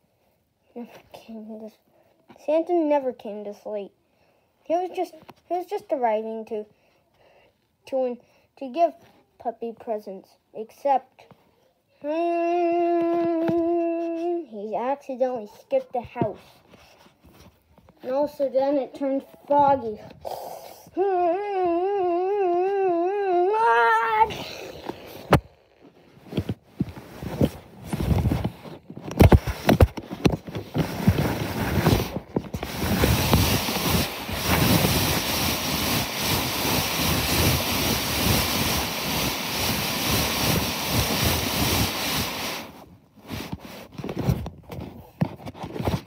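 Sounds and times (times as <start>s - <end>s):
microphone handling knocks and rubs: 16.0s - 18.0s, 24.8s - 36.0s.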